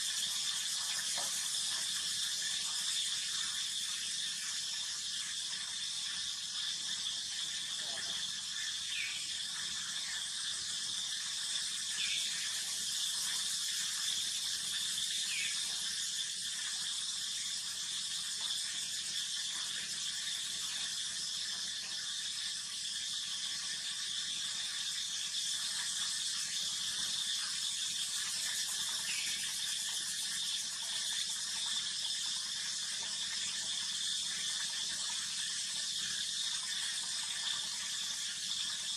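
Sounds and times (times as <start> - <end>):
high-pitched insect buzzing: 11.9 - 16.4, 26.2 - 31.3.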